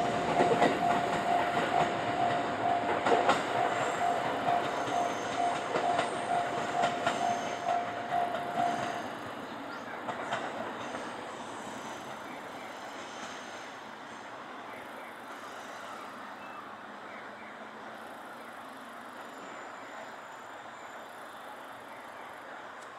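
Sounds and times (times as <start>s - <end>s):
train wheels clacking on rails: 0.0s - 14.4s.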